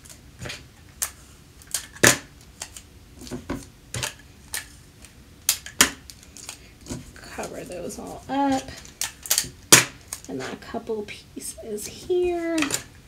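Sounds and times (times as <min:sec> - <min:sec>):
tape being pulled and torn: 0:08.5 - 0:10.5.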